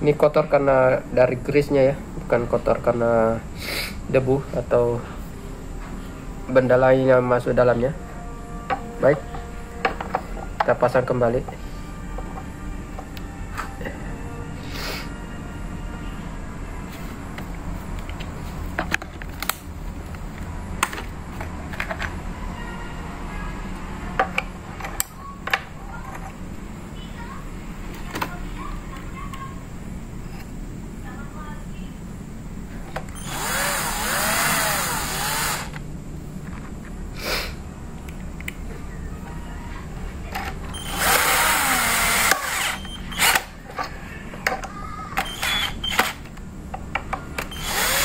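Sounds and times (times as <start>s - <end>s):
steady low hum: 0.0s - 48.0s
cordless drill motor whine: 33.1s - 35.8s, 40.8s - 43.5s, 45.2s - 46.2s, 47.5s - 48.0s.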